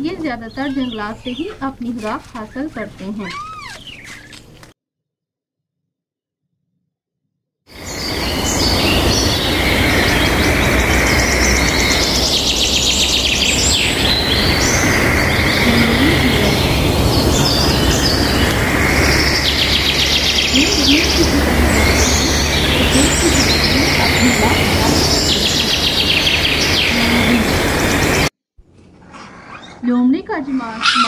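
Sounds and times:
small birds chirping: 0:00.0 - 0:04.7, 0:07.8 - 0:28.3
loud steady noise: 0:07.9 - 0:28.3.

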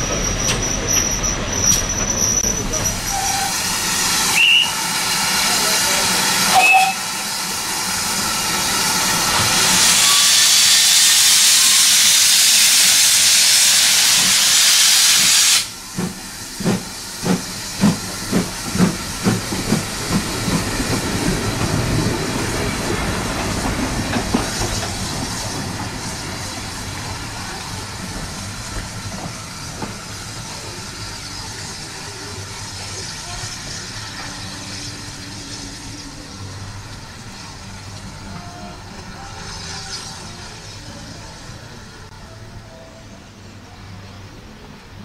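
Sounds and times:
steam locomotive exhaust beats: 0:00.0 - 0:39.4
loud steam hiss: 0:01.8 - 0:41.0
steam locomotive whistle toots: 0:02.8 - 0:05.0, 0:06.4 - 0:07.4, 0:09.7 - 0:15.7.

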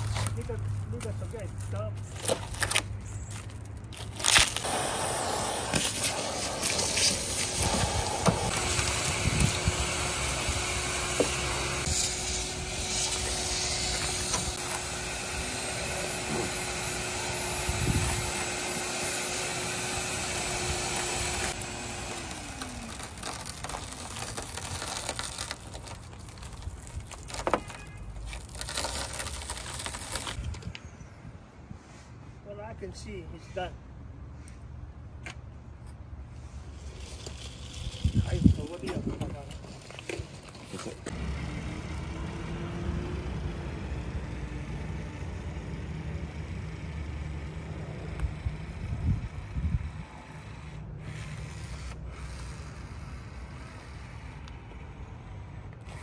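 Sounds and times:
broken glass crunching: 0:22.0 - 0:30.4.

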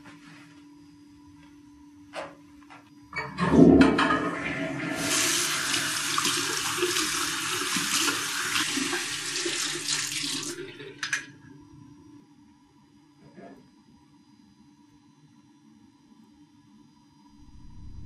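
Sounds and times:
toilet flush water rushing: 0:03.3 - 0:11.3
sink tap running: 0:04.9 - 0:11.3.

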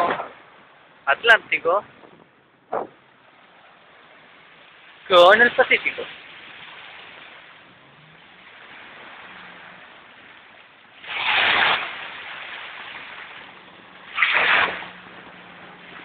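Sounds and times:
small waves breaking: 0:00.0 - 0:16.0
water hiss: 0:04.3 - 0:16.0.

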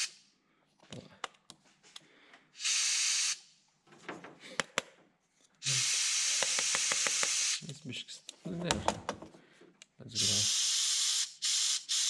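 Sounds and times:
compressed air hissing in bursts: 0:02.6 - 0:03.4, 0:05.6 - 0:07.6, 0:10.2 - 0:12.0.

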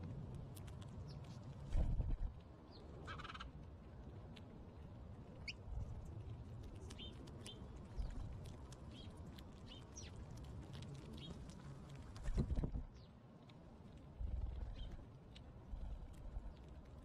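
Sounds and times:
low steady rumble: 0:00.0 - 0:17.0
songbirds chirping: 0:02.4 - 0:03.6, 0:04.7 - 0:12.0, 0:12.8 - 0:13.2, 0:14.4 - 0:17.0.

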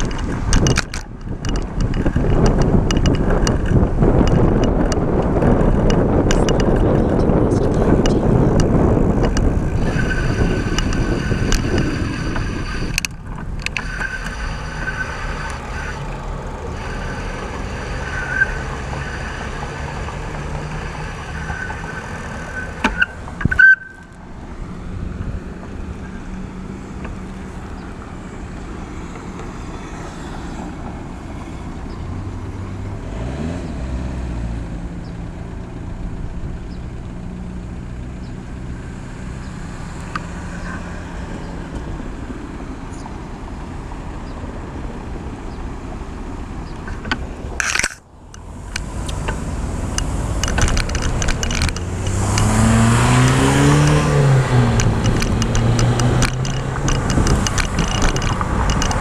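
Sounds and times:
sharp clicks: 0:00.0 - 0:16.1, 0:46.7 - 0:54.1, 0:54.7 - 0:59.0
low engine rumble: 0:00.0 - 0:59.0
passing vehicles rushing: 0:00.0 - 0:59.0.

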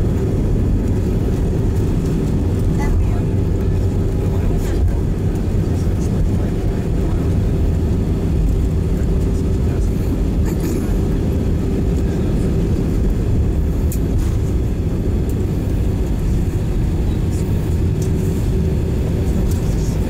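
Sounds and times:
airliner cabin rumble: 0:00.0 - 0:20.0
constant low hum: 0:00.0 - 0:20.0
engine and wheel noise: 0:00.0 - 0:20.0.

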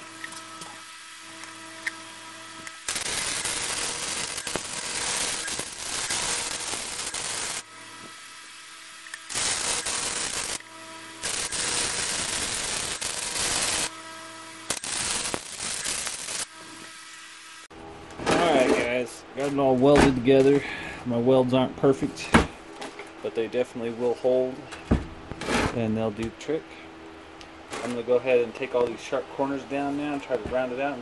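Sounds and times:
welding arc crackling: 0:00.0 - 0:17.7
welder hum: 0:00.0 - 0:31.0.

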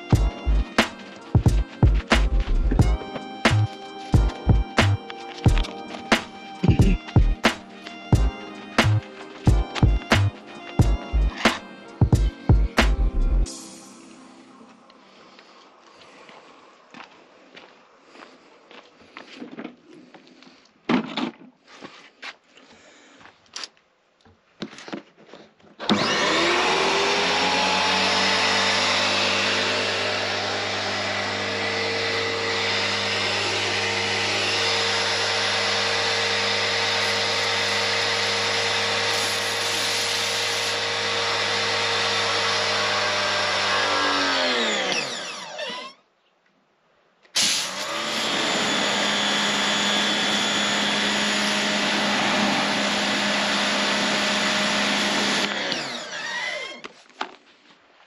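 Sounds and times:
pressure washer motor whining: 0:00.0 - 0:13.9, 0:25.8 - 0:45.9, 0:47.4 - 0:56.9.

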